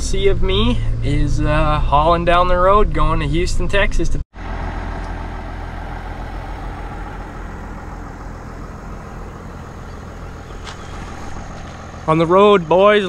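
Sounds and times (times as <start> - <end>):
truck engine idling: 4.4 - 13.0.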